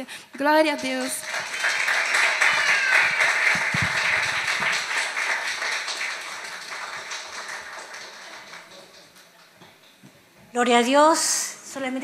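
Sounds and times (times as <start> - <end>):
congregation applauding: 0.7 - 9.5.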